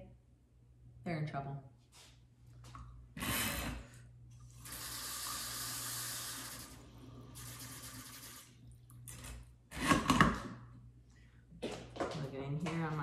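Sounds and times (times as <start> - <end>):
faucet water pouring: 4.3 - 9.4.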